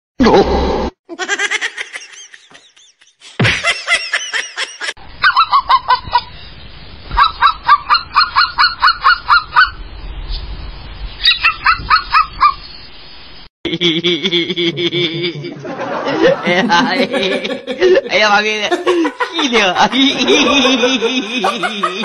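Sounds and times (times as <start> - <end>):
people laughing: 1.1 - 5.0, 13.7 - 22.0.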